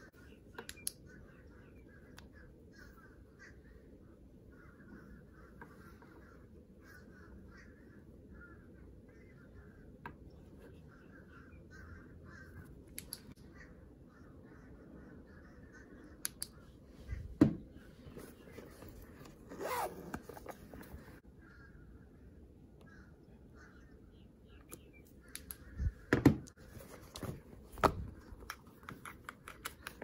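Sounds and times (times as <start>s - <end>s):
leather rustling and creasing: 18.2s - 21.2s.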